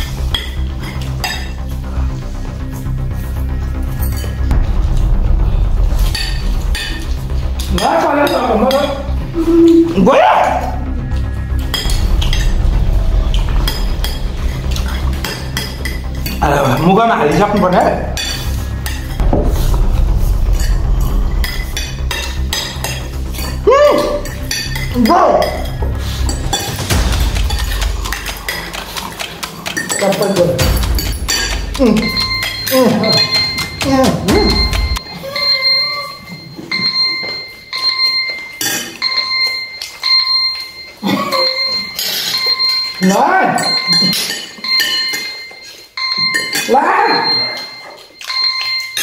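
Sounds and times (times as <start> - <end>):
forks clinking on plates: 0.0 - 1.7, 7.6 - 9.9, 11.6 - 12.4, 13.7 - 19.2, 21.4 - 49.0
low steady rumble: 4.5 - 7.8
phone timer alarm ringing: 31.9 - 49.0
voices: 43.0 - 44.2.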